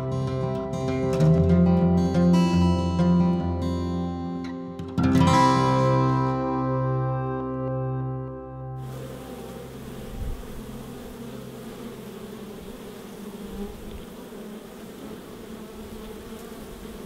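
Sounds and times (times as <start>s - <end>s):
honeybees buzzing: 8.8s - 17.0s.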